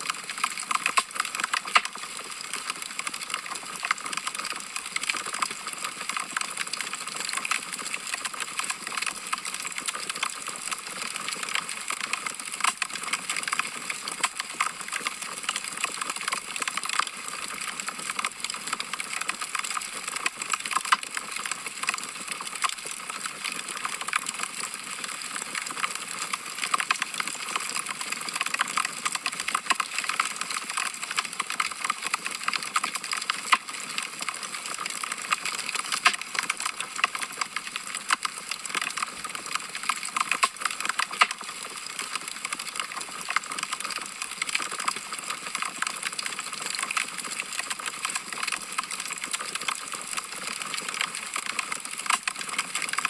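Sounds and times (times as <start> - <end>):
wood fire crackling: 32.8 - 38.9.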